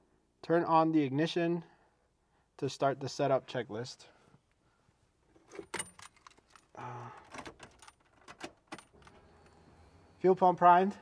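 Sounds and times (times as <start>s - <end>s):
car keys jingling: 5.4s - 9.5s.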